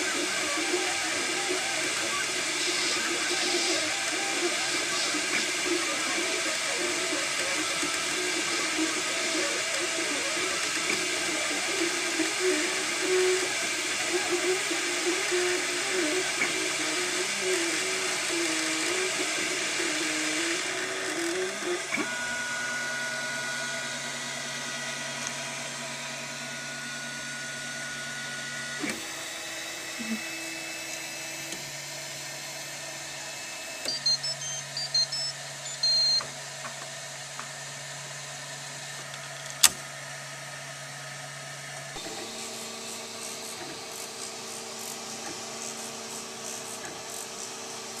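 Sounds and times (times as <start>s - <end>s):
stepper motors whining: 0.0s - 48.0s
high beeps: 33.9s - 36.2s.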